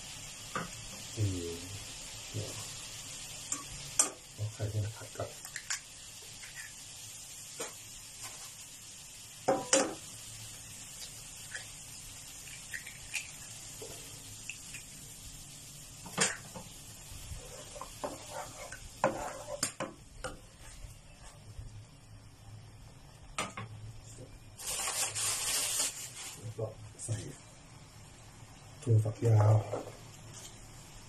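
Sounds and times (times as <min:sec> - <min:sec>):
eggs sizzling in oil: 0:00.0 - 0:31.0
plastic spatula scraping a pan: 0:17.4 - 0:19.7.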